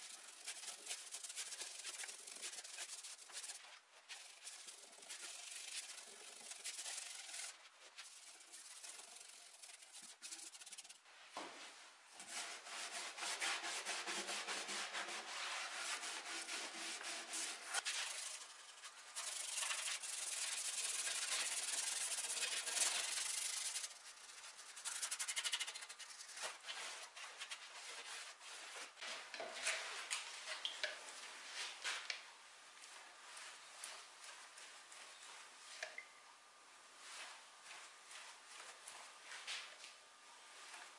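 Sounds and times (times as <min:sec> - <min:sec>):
paintbrush scratching over wood: 0:00.0 - 0:11.0, 0:12.2 - 0:29.0.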